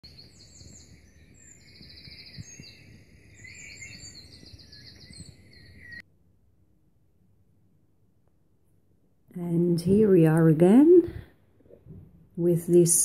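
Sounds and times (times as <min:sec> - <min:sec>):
birds chirping and trilling: 0:00.0 - 0:06.0.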